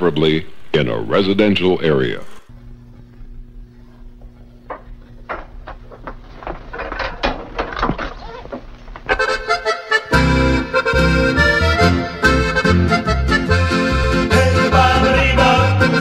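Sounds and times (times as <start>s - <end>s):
quiet clicks and knocks: 4.2s - 9.6s
accordion music: 9.1s - 16.0s.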